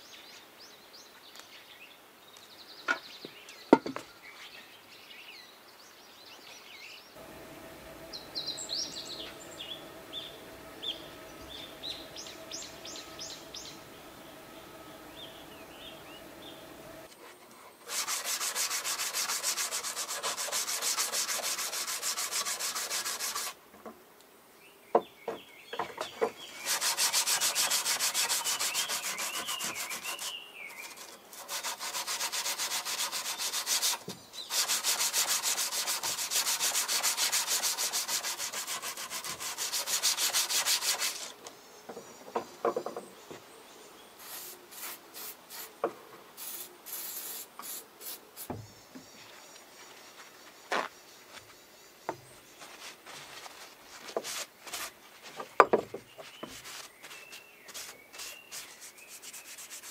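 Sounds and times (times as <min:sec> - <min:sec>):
file rasping on metal: 0:17.8 - 0:23.6, 0:26.6 - 0:41.3.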